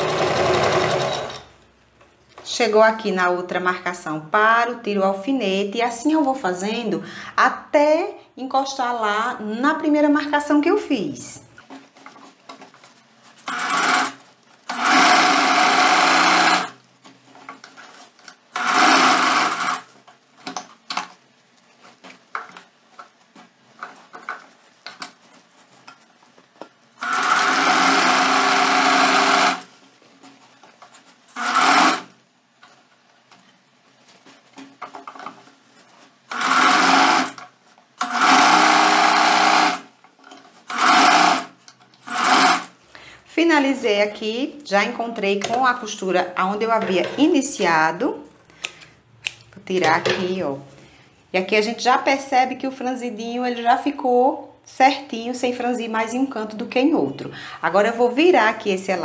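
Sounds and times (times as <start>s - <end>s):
sewing machine stitching: 0.0s - 1.6s, 13.4s - 16.8s, 18.5s - 19.9s, 27.0s - 29.7s, 31.3s - 32.2s, 36.3s - 39.9s, 40.6s - 42.8s
fabric rustling: 11.5s - 14.7s, 19.4s - 27.0s, 29.4s - 31.3s, 32.1s - 36.3s.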